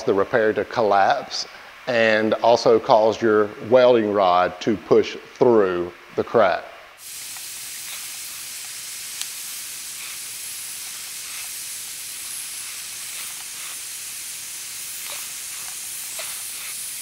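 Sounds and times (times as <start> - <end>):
gas hissing from welder tip: 7.0 - 17.0.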